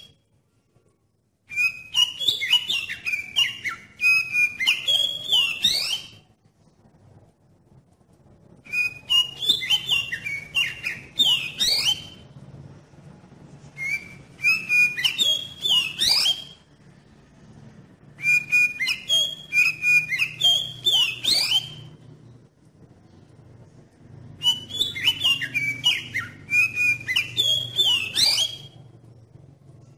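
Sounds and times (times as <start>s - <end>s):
bird singing whistled phrases: 1.5s - 6.2s, 8.6s - 12.2s, 13.8s - 16.6s, 18.2s - 22.0s, 24.4s - 28.8s.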